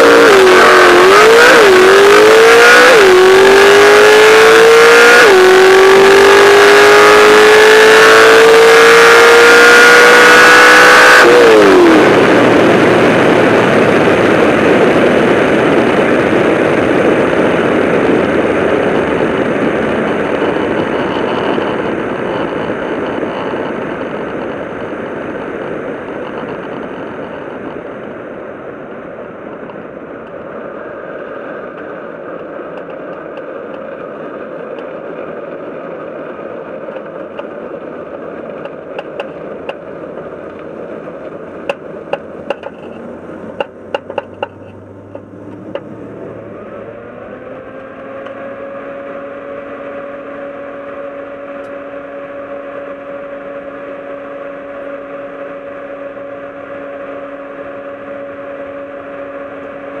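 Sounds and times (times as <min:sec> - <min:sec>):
road and wind rush: 0:00.0 - 1:00.0
car engine idling: 0:39.8 - 0:46.7.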